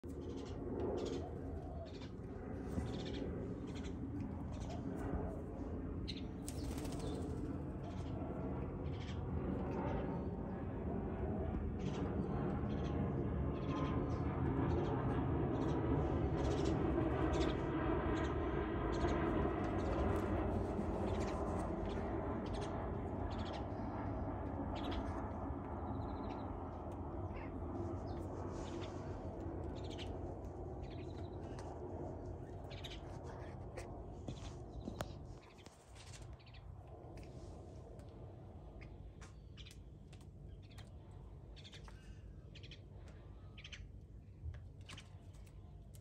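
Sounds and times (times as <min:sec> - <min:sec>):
steady low rumble: 0:00.0 - 0:46.0
wild birds chirping: 0:00.1 - 0:04.9, 0:30.8 - 0:31.6, 0:32.4 - 0:33.5, 0:40.5 - 0:44.0.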